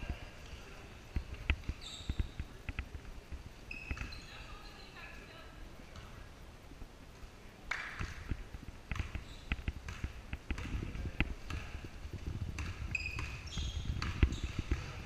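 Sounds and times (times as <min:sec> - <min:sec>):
shoe squeaks: 0:01.7 - 0:02.4, 0:03.7 - 0:04.9, 0:09.1 - 0:09.6, 0:12.8 - 0:15.0
basketball bouncing on wooden floor: 0:08.9 - 0:10.9, 0:11.5 - 0:15.0.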